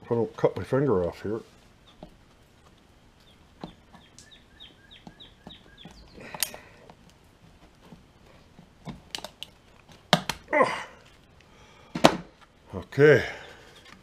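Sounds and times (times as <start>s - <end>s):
plastic snapping: 8.8s - 10.5s.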